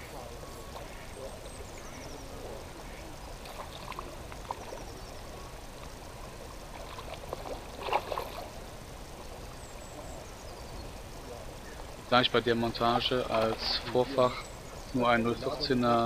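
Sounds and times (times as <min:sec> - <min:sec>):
fish splashing at water surface: 0:06.7 - 0:08.6.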